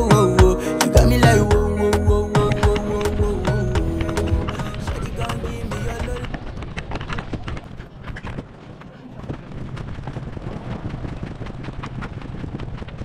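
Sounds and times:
running footsteps on paving: 0:02.4 - 0:13.0
wind on microphone: 0:02.8 - 0:13.0.

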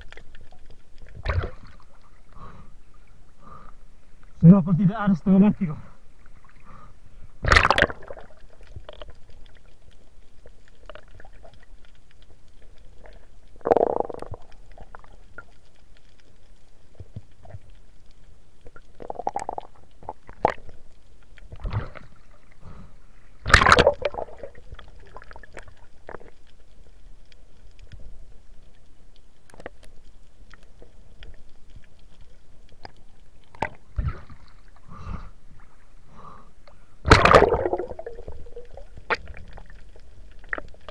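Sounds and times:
underwater rumble of moving water: 0:00.0 - 0:40.9
camera splashing into water: 0:07.4 - 0:08.0, 0:37.1 - 0:37.9.

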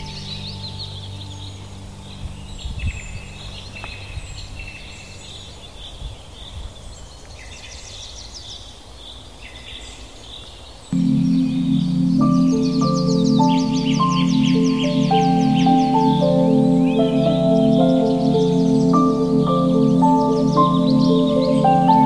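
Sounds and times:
soft sustained music chord: 0:00.0 - 0:04.3, 0:11.0 - 0:22.0
songbirds singing and chirping: 0:00.0 - 0:22.0.

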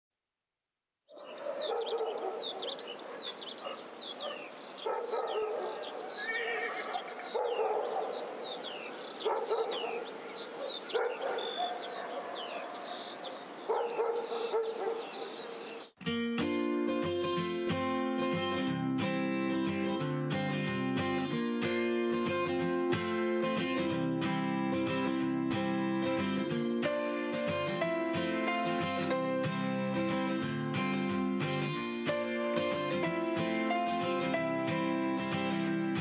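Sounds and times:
dog barking and yipping: 0:01.2 - 0:06.1, 0:06.8 - 0:08.6, 0:09.2 - 0:15.4
acoustic guitar tune: 0:16.0 - 0:36.0.

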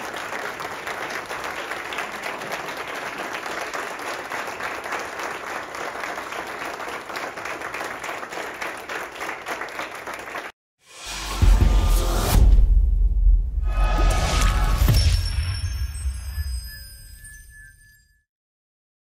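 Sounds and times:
people applauding: 0:00.0 - 0:10.6.

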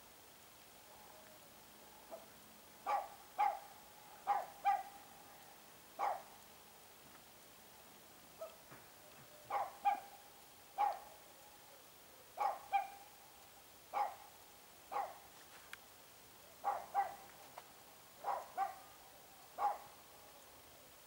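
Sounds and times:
dog barking: 0:02.1 - 0:05.0, 0:06.0 - 0:06.3, 0:08.4 - 0:08.6, 0:09.2 - 0:10.2, 0:10.8 - 0:11.1, 0:12.4 - 0:13.1, 0:13.9 - 0:14.3, 0:14.9 - 0:15.3, 0:16.6 - 0:17.3, 0:18.2 - 0:19.0, 0:19.6 - 0:20.0.

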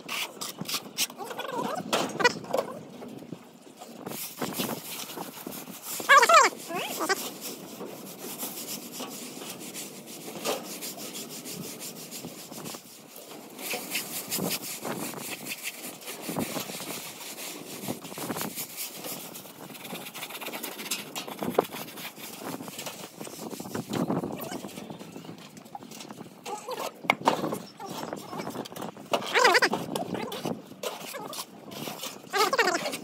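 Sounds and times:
sponge float scraping a wall: 0:03.8 - 0:25.3, 0:26.0 - 0:33.0.

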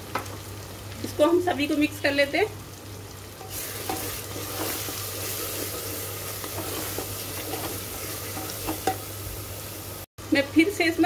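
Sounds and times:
masala sizzling in a pot: 0:00.0 - 0:11.0
spatula scraping pot: 0:03.4 - 0:09.0.

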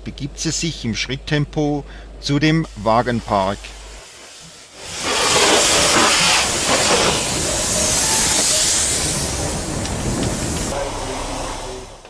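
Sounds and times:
steam locomotive hissing: 0:02.4 - 0:12.0.

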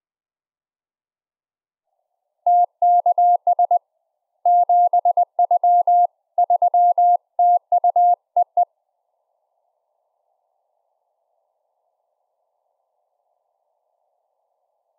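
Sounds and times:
morse code tone: 0:04.5 - 0:08.6.

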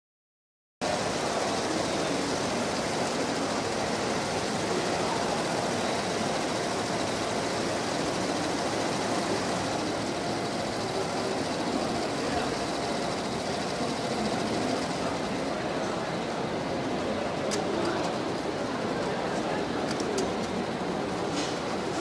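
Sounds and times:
embroidery machine stitching: 0:01.0 - 0:15.8.

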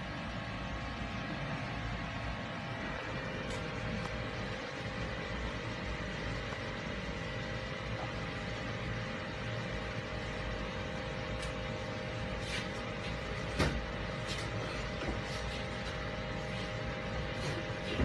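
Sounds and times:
constant hum tones: 0:00.0 - 0:18.0.

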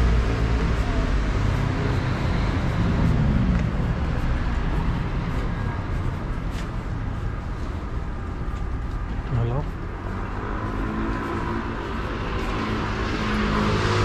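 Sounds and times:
vehicle engine rumbling past: 0:00.0 - 0:08.3.

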